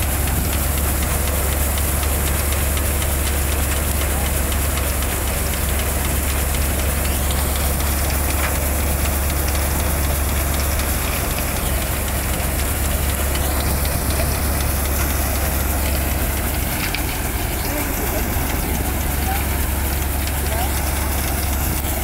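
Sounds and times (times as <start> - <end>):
low engine drone: 0.0 - 22.0
threshing drum rushing noise: 7.4 - 22.0.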